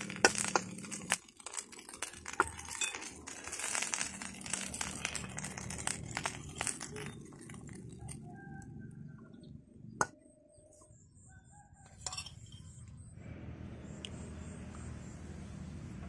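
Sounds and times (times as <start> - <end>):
rooster crowing: 8.0 - 9.2.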